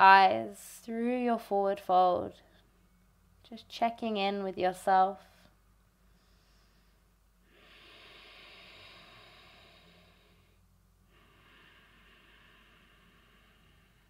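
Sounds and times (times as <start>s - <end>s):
woman breathing slowly: 5.4s - 14.0s.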